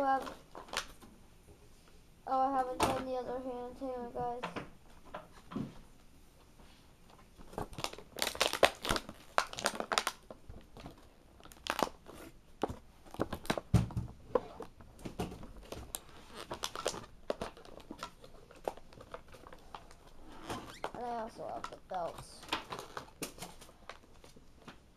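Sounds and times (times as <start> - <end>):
plastic packaging crinkling: 0.0 - 1.0, 7.4 - 13.7, 15.4 - 24.7.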